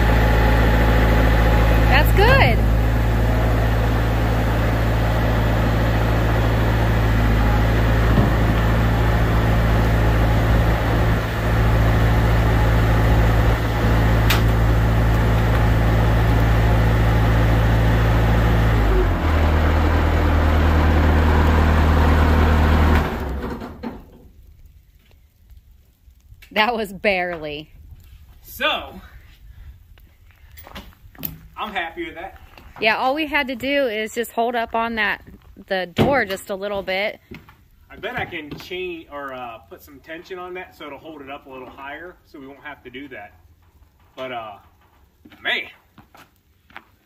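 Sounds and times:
diesel loader engine running: 0.0s - 24.2s.

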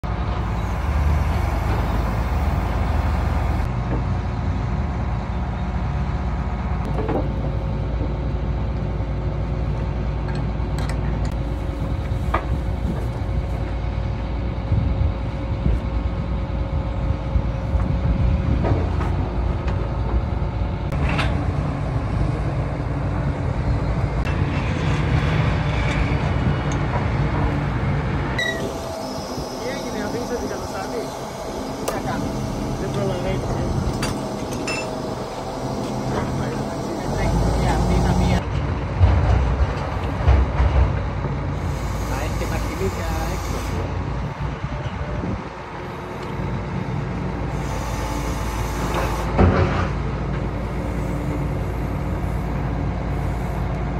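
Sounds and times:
diesel engine idling: 0.0s - 18.5s, 27.2s - 38.9s, 50.0s - 53.9s.

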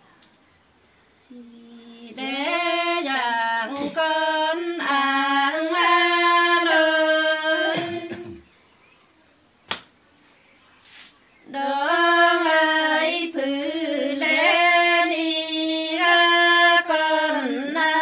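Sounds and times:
woman singing unaccompanied: 1.3s - 8.4s, 11.4s - 18.0s.

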